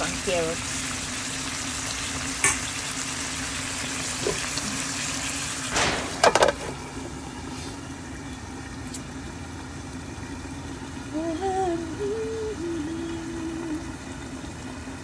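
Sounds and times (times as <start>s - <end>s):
food simmering in a pan: 0.0s - 15.0s
steady low hum: 0.0s - 15.0s
metal lid clanking on pan: 2.4s - 2.8s, 5.7s - 6.8s.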